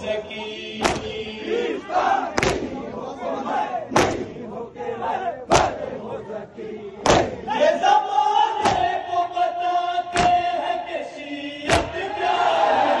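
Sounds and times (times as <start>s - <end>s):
crowd chanting in unison: 0.0s - 13.0s
many hands clapping in time: 0.8s - 1.1s.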